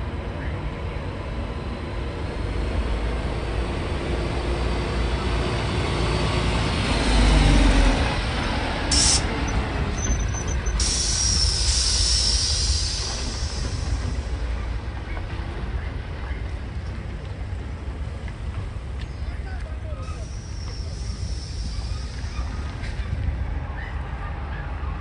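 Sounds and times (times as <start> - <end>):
air brakes hissing: 8.9 - 14.5, 20.0 - 23.0.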